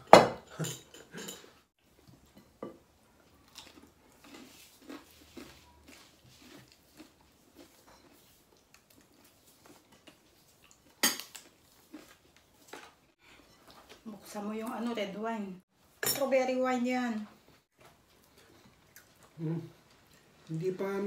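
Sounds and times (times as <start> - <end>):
chewing: 3.2 - 14.0, 17.8 - 20.6.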